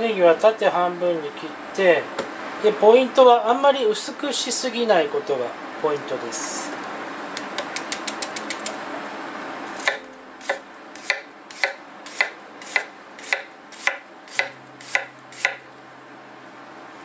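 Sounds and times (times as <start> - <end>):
knife chopping on cutting board: 9.8 - 15.6.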